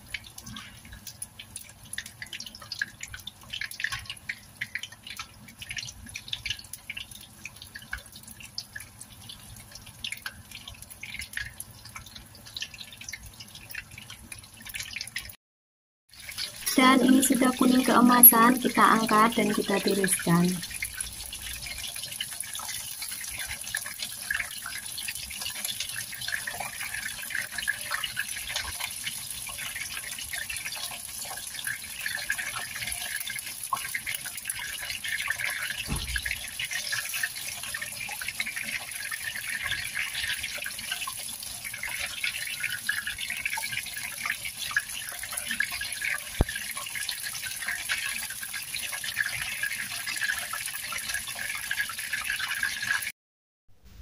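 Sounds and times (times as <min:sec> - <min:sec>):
tofu sizzling in hot oil: 0:20.3 - 0:53.1
dull knock: 0:35.9 - 0:36.4.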